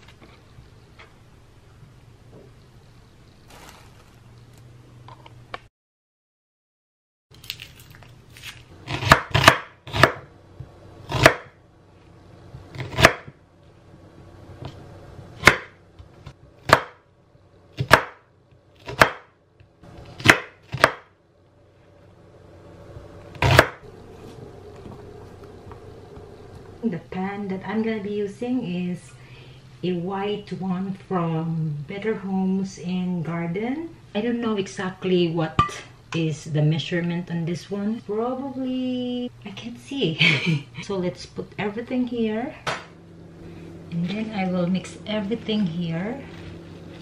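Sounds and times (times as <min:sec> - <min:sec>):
knife chopping on wooden board: 0:08.9 - 0:10.3, 0:11.1 - 0:11.5, 0:15.4 - 0:15.8, 0:16.6 - 0:17.0, 0:17.8 - 0:18.2, 0:18.8 - 0:19.3, 0:20.2 - 0:21.1.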